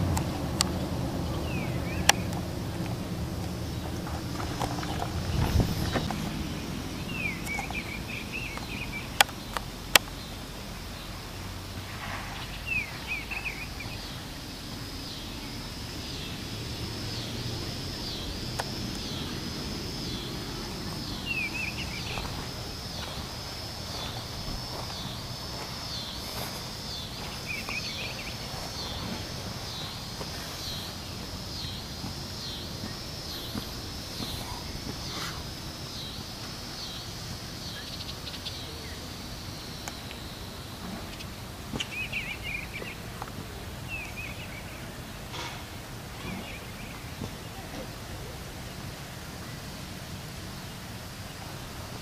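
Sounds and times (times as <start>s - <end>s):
low wind rumble: 0.0s - 47.6s
bird chirps: 0.2s - 2.6s, 3.7s - 43.0s
high pulsing call: 12.5s - 39.1s.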